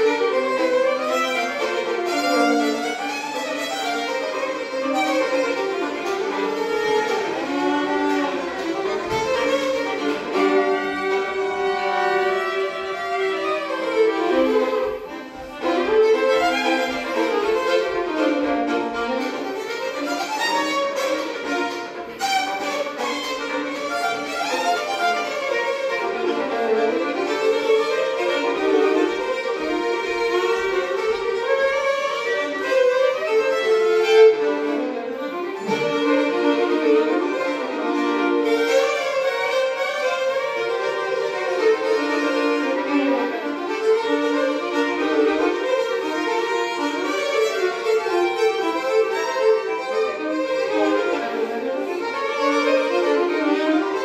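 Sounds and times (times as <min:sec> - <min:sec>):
fiddle duet: 0:00.0 - 0:54.0.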